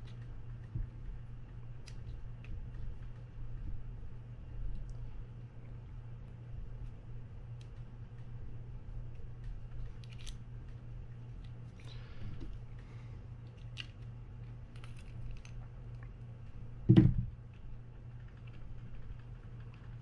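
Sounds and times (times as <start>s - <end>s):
loud short thump: 16.9s - 17.3s.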